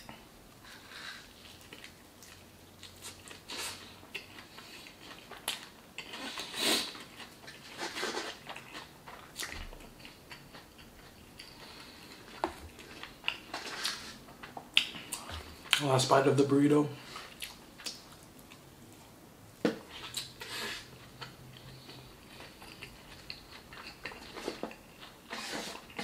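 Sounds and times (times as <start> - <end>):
close chewing with wet smacks: 1.5 - 6.3, 6.9 - 15.8, 17.3 - 18.7, 20.0 - 25.2.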